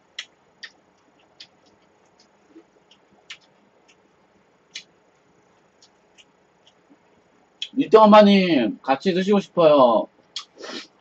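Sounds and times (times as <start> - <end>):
wet mouth clicks of chewing: 0.1 - 4.1, 5.6 - 7.0.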